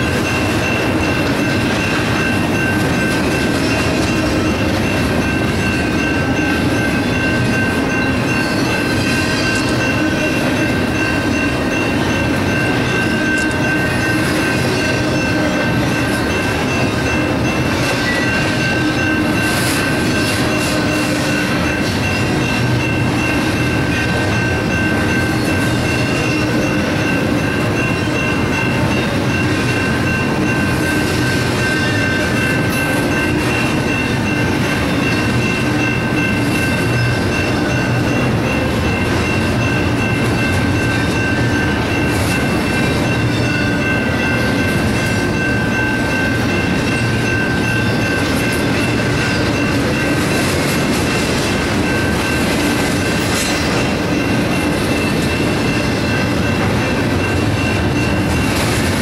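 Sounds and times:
electronic crossing bells ringing: 0.0s - 59.0s
freight train rolling: 0.0s - 59.0s.

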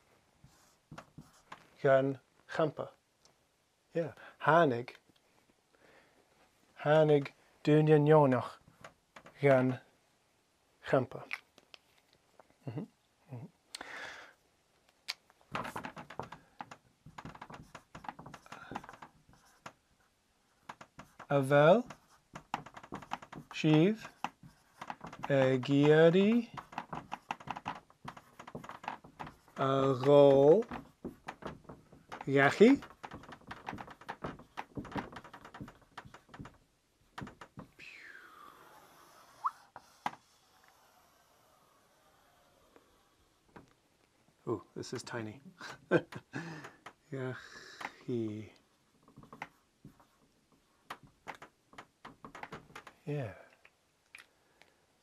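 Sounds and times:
marker scratching on whiteboard: 0.5s - 1.6s, 17.0s - 19.8s, 20.6s - 36.5s, 38.6s - 42.5s, 49.2s - 50.2s.

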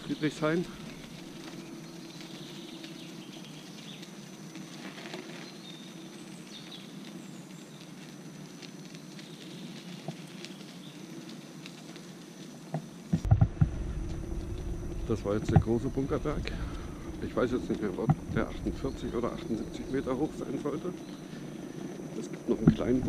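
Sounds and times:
small ticks and crackles: 0.0s - 23.0s
tyre rolling on dirt: 0.0s - 23.0s.

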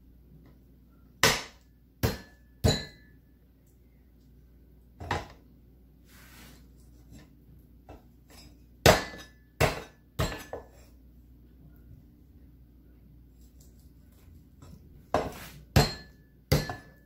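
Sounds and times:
cleaver chopping on wooden board: 15.2s - 16.9s.

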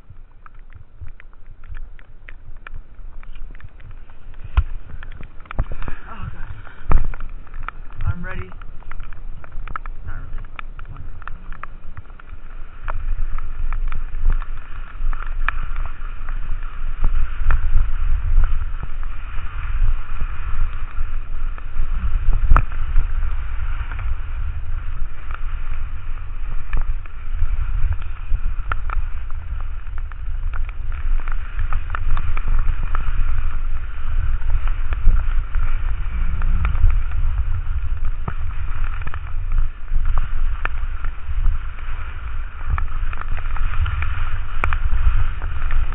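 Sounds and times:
wind buffeting microphone: 0.0s - 45.9s
sharp ticks: 0.4s - 19.7s
skis hissing on wet snow: 4.0s - 8.5s, 10.1s - 45.9s.

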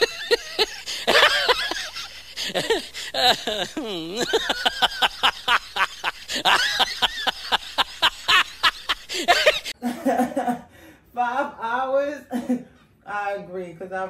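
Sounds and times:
person speaking: 0.0s - 9.7s
person laughing hard: 0.0s - 10.7s.

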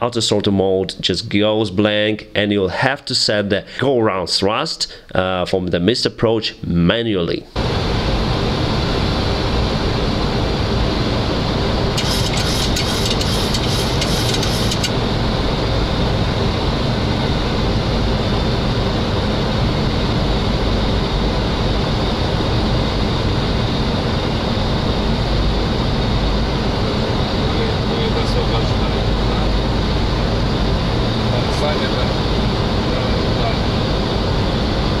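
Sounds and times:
cockpit airflow and engine rushing: 7.6s - 35.0s.

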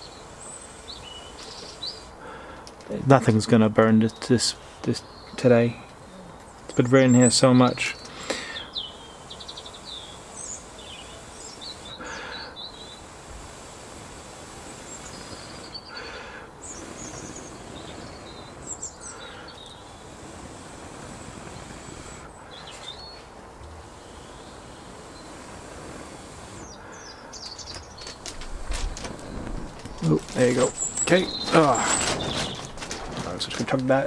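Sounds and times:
outdoor hiss: 0.0s - 34.0s
small birds chirping: 0.0s - 34.0s
person blowing breathy puffs: 8.0s - 33.0s.

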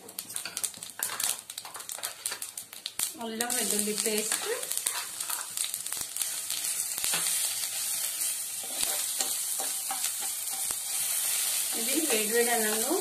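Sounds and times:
paste sizzling in hot oil: 0.0s - 13.0s
steel spoon stirring: 4.3s - 5.6s, 8.1s - 13.0s.

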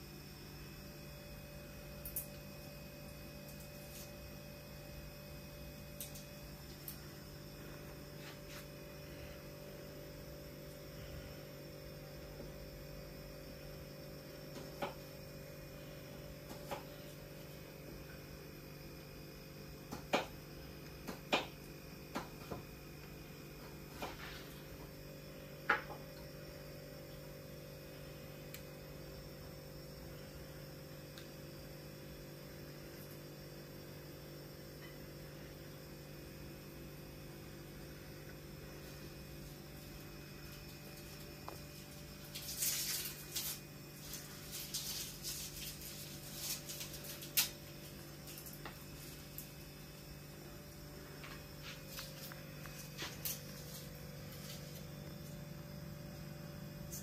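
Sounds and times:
low electrical hum: 0.0s - 57.0s
crackling rustles: 40.5s - 49.6s, 51.6s - 55.4s.

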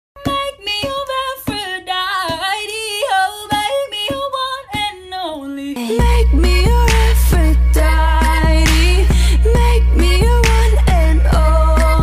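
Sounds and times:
woman singing: 0.2s - 12.0s
sparse sharp beats: 6.0s - 12.0s.

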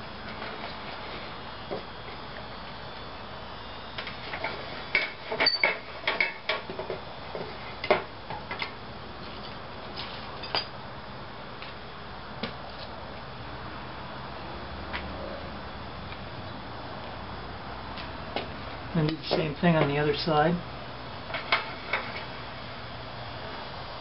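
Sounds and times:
steel strap clinking against vise: 5.4s - 6.3s.

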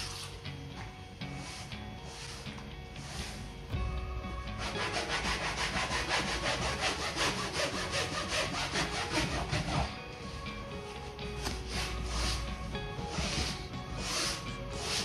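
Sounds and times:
sponge scrubbing fabric: 1.3s - 3.5s, 4.6s - 10.0s, 11.4s - 15.0s.

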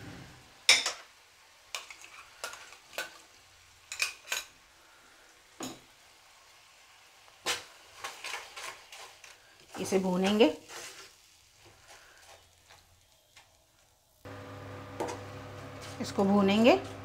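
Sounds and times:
oil frying faintly: 0.0s - 17.0s
metal spoon clinking on pan: 3.9s - 4.5s.

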